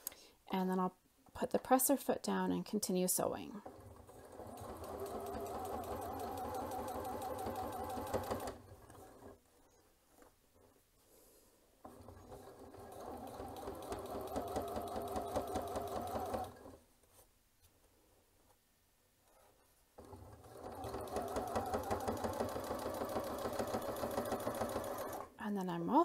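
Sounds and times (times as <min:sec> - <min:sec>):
sewing machine stitching: 0:03.5 - 0:09.6, 0:11.8 - 0:16.8, 0:20.0 - 0:25.4.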